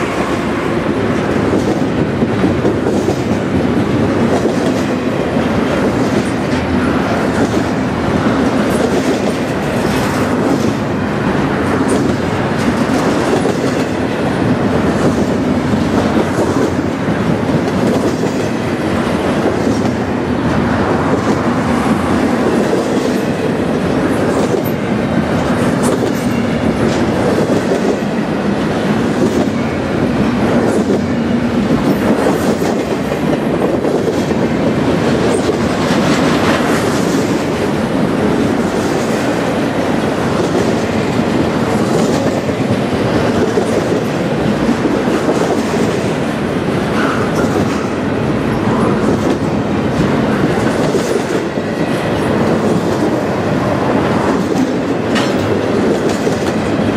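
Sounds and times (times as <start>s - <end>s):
freight train wheels rumbling: 0.0s - 56.9s
wheels clicking over rail joints: 54.2s - 56.9s.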